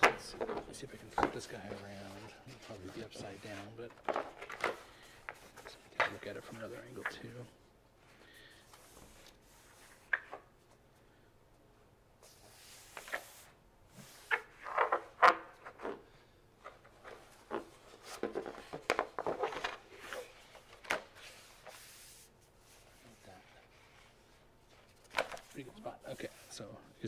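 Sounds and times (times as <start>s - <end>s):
stiff paper rustling and crinkling: 0.0s - 7.4s, 16.6s - 22.1s.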